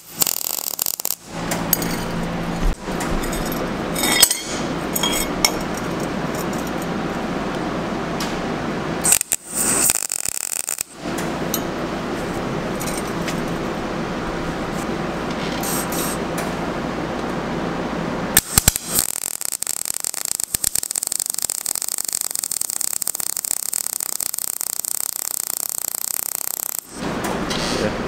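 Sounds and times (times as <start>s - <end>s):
welding arc popping: 0.0s - 16.6s, 18.3s - 27.7s
welding arc crackling and sizzling: 0.0s - 16.7s, 17.9s - 27.7s
workshop noise: 0.0s - 19.4s, 26.8s - 28.0s.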